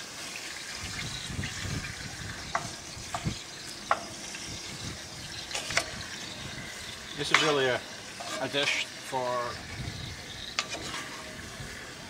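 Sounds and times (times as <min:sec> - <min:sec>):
meat sizzling in a pot: 0:00.0 - 0:12.0
utensil scraping and knocking pot: 0:02.4 - 0:04.4, 0:05.5 - 0:09.1, 0:10.5 - 0:11.5.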